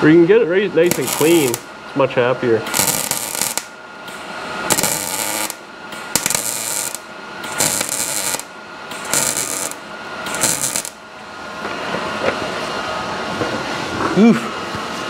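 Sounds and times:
welding arc crackling: 0:00.8 - 0:01.7, 0:02.7 - 0:11.1.

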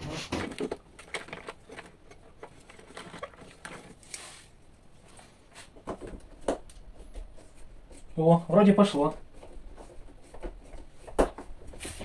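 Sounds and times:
hand tools clicking and scraping: 0:00.0 - 0:04.5.

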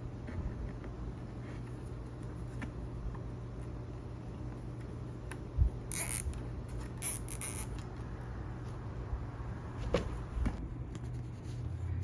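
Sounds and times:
cable tie zipping: 0:05.9 - 0:07.8.

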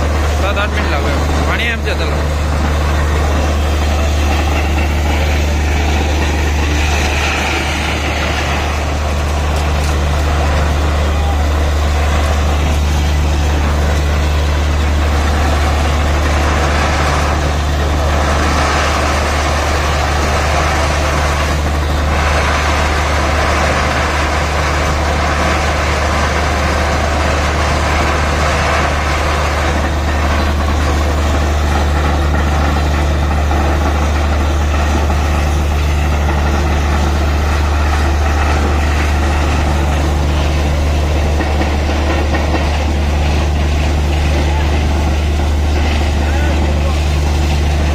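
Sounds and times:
drilling rig engine drone: 0:00.0 - 0:47.9
water and air gushing: 0:00.0 - 0:47.9.

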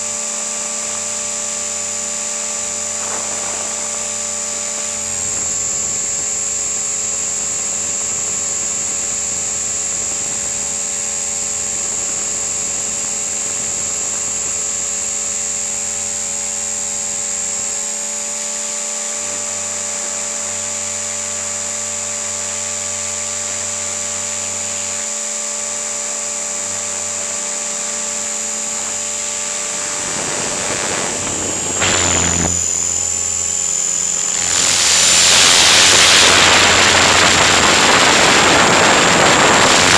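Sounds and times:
helicopter rotor noise: 0:00.0 - 0:39.9
high-pitched motor whine: 0:00.0 - 0:39.9
rush of noise: 0:02.3 - 0:06.4, 0:28.6 - 0:39.9.

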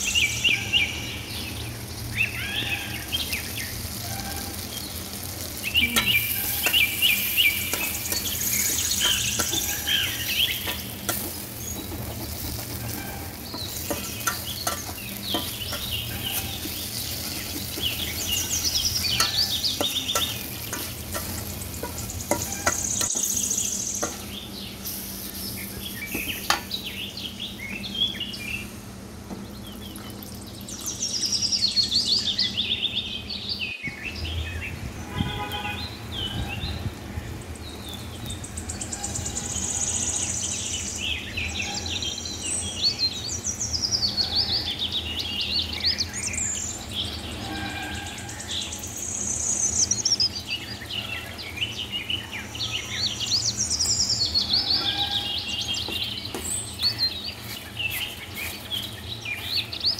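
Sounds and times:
prawns sizzling in pan: 0:00.0 - 0:27.4
birds chirping: 0:00.0 - 0:59.9
metal spatula scraping: 0:06.0 - 0:18.4, 0:19.0 - 0:23.4.

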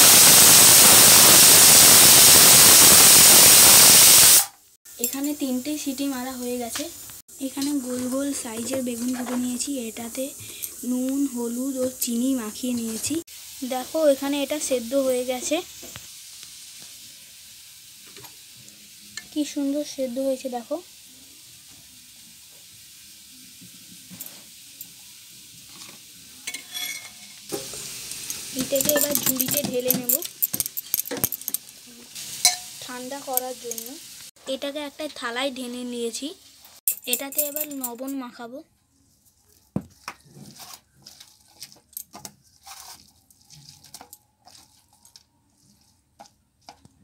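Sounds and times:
faint steady hiss: 0:03.6 - 0:39.3
spoon clinking on pot: 0:32.4 - 0:32.8
hand squeezing wet leaves: 0:39.0 - 0:47.0.

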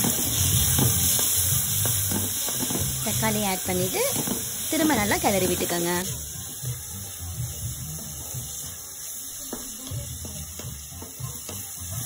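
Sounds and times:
frying hiss: 0:00.0 - 0:12.0.

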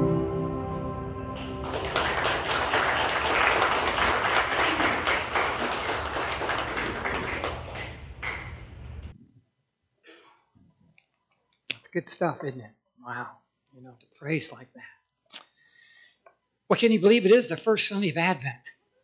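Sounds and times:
congregation applauding: 0:01.3 - 0:08.7.

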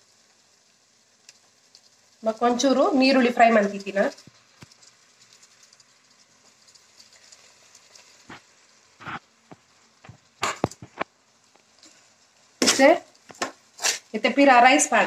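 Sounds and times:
utensil clatter and scrape: 0:03.4 - 0:11.1, 0:12.6 - 0:14.1.

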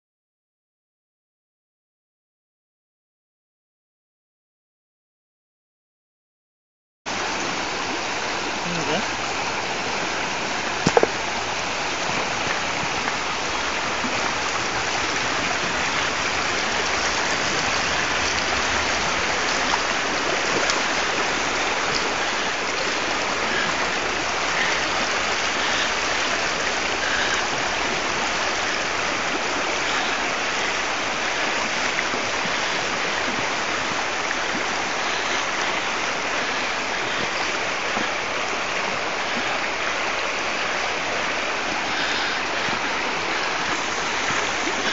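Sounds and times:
river water rushing over rocks: 0:07.1 - 0:44.9
brief knock: 0:10.8 - 0:11.2.

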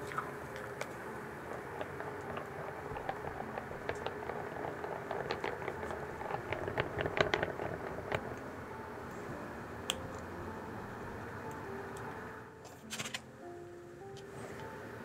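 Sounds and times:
whisk wires clicking on glass: 0:00.6 - 0:08.5
whisk stirring thick cream: 0:01.4 - 0:08.4.

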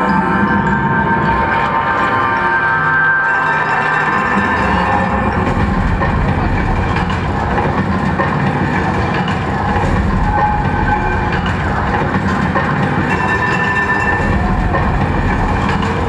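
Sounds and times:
rumbling clattering mechanical effect: 0:03.7 - 0:16.0.

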